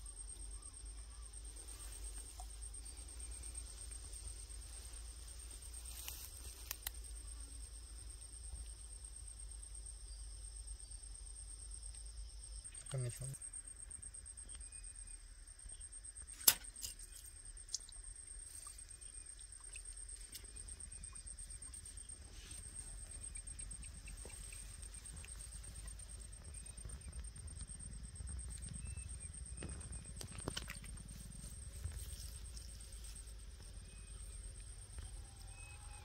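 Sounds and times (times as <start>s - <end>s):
insect trilling: 12.5s - 36.0s.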